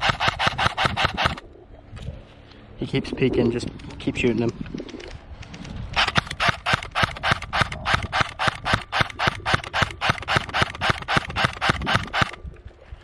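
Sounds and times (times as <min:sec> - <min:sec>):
airsoft gun firing sharp cracks: 0:00.0 - 0:01.4, 0:06.0 - 0:12.4.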